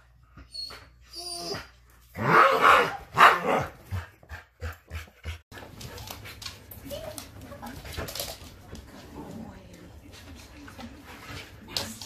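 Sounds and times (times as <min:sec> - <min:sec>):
dog whining: 0:00.4 - 0:02.6
dog barking: 0:02.2 - 0:03.8.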